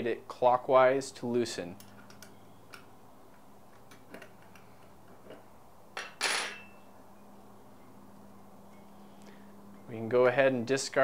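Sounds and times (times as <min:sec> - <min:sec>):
wrench clattering onto table: 0:06.0 - 0:06.7.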